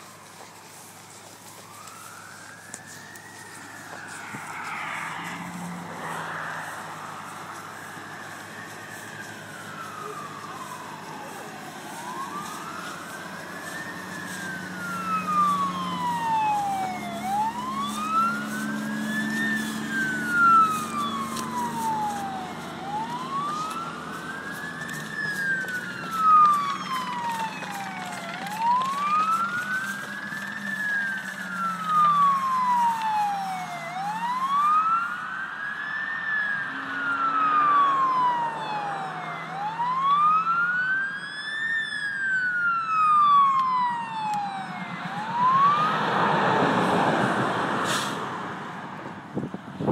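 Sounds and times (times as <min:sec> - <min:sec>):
fire engine siren wailing: 0:00.0 - 0:49.9.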